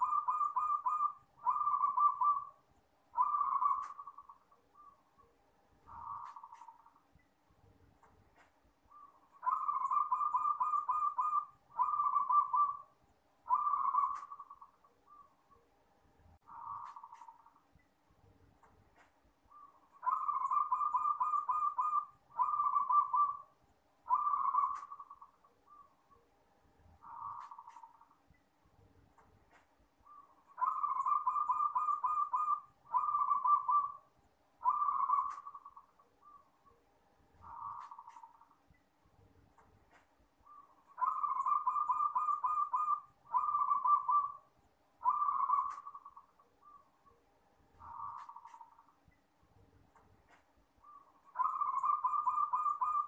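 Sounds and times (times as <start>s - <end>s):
dove cooing: 0.0s - 2.6s, 3.2s - 4.9s, 8.9s - 12.9s, 13.5s - 15.2s, 19.5s - 23.5s, 24.1s - 25.9s, 27.0s - 28.0s, 30.1s - 34.0s, 34.6s - 36.4s, 37.4s - 38.4s, 40.5s - 44.4s, 45.0s - 46.8s, 47.8s - 48.8s, 50.8s - 53.0s.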